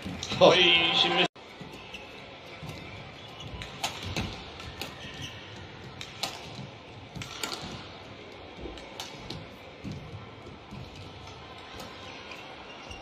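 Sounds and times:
rackets hitting shuttlecock: 0:03.5 - 0:07.9, 0:08.7 - 0:09.5.

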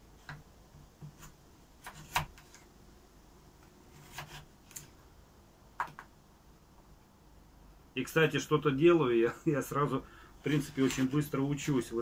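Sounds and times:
knife chopping on wooden board: 0:01.0 - 0:02.4.

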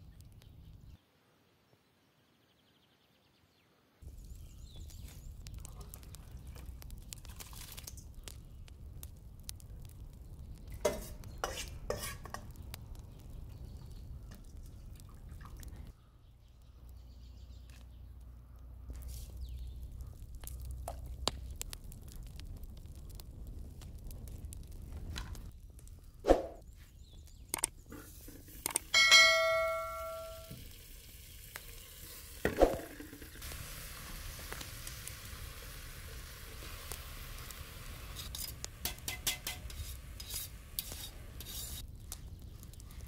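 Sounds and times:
metal pots and ladle clinking: 0:10.8 - 0:12.5, 0:27.9 - 0:30.5, 0:38.4 - 0:39.9.

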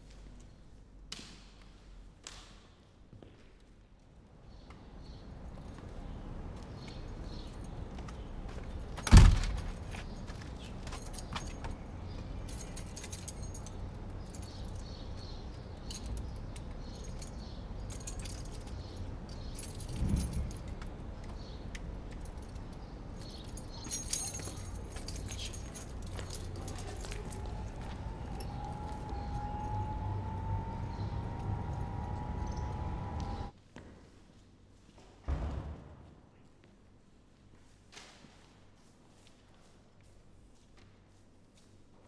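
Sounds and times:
keys jangling: 0:08.8 - 0:33.5
door shutting with thump: 0:09.0 - 0:09.8, 0:35.3 - 0:36.0.

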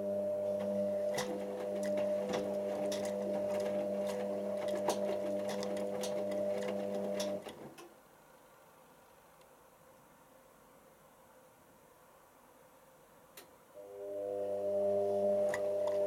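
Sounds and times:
washing machine motor hum: 0:00.0 - 0:07.8, 0:13.8 - 0:16.0.

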